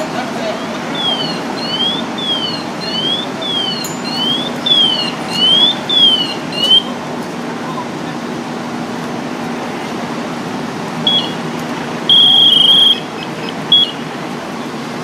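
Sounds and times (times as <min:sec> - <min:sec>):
fire engine idling hum: 0:00.0 - 0:15.0
high-pitched electronic alarm beeping: 0:00.6 - 0:06.9, 0:11.1 - 0:11.4, 0:12.1 - 0:14.1.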